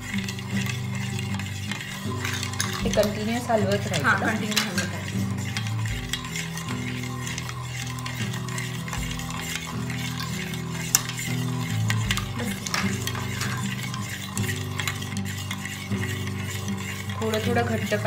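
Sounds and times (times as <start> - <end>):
soft background music: 0.0 - 18.0
spoon clinking in steel bowl: 0.0 - 18.0.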